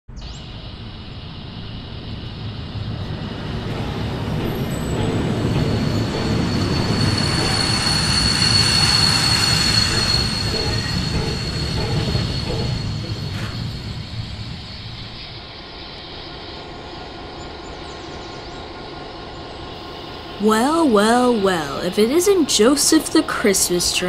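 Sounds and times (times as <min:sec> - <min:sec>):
train rumbling past: 0:00.2 - 0:24.0
high-pitched wheel squeal: 0:04.6 - 0:14.5.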